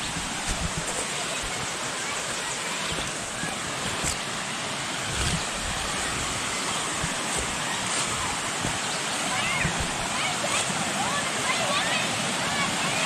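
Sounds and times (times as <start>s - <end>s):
soft low thumps: 0.0s - 1.0s
creek rushing over rocks: 0.0s - 13.0s.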